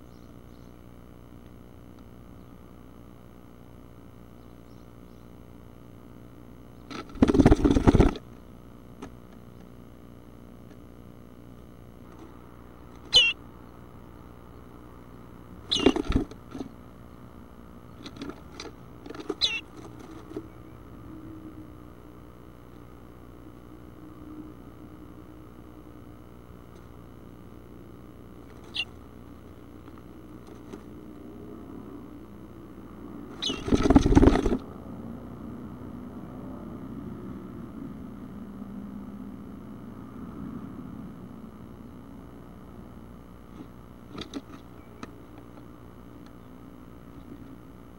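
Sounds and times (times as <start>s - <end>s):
bird call notes: 13.0s - 13.4s, 15.7s - 16.1s, 19.3s - 19.7s, 28.6s - 29.0s, 33.4s - 33.8s.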